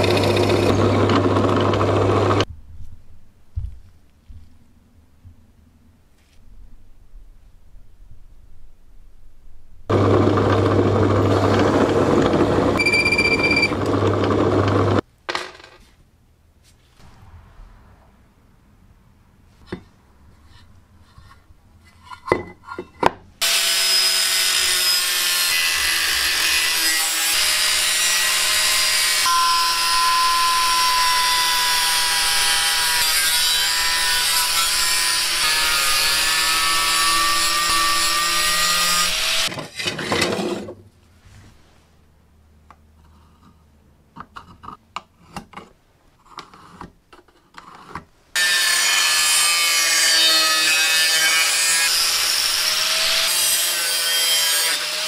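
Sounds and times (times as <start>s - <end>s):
angle grinder cutting metal: 23.4s - 39.5s, 48.4s - 55.0s.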